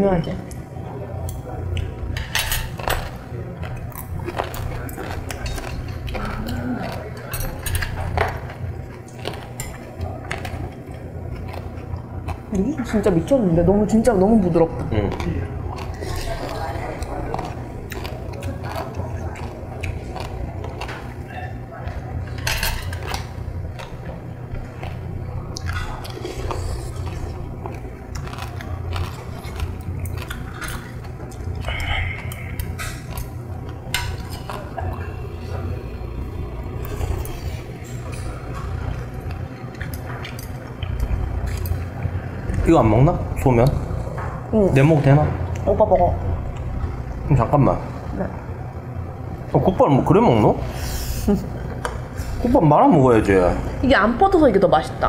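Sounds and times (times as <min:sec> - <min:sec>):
steady low hum: 0:00.0 - 0:55.0
utensils clicking against bowls: 0:01.2 - 0:11.6, 0:36.8 - 0:41.9
chewing and biting: 0:03.6 - 0:12.6, 0:14.8 - 0:22.2, 0:23.0 - 0:35.6, 0:36.8 - 0:42.7.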